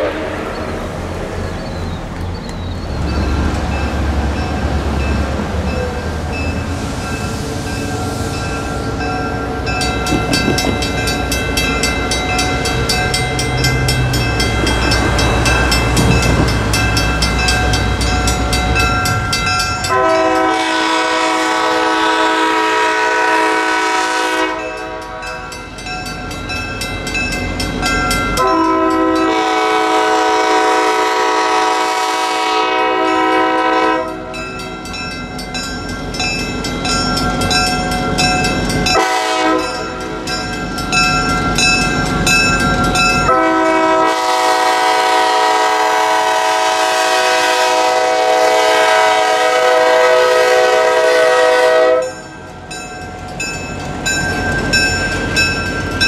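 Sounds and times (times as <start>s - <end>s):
locomotive horn chord blasts: 0.0s - 0.6s, 19.8s - 25.6s, 28.4s - 34.4s, 38.9s - 39.9s, 43.3s - 52.2s
bell ringing rapidly: 52.1s - 56.0s.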